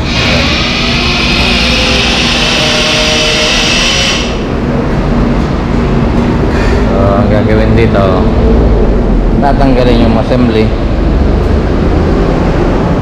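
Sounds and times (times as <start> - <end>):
loud steady hiss: 0.0 - 4.9
constant low hum: 0.0 - 13.0.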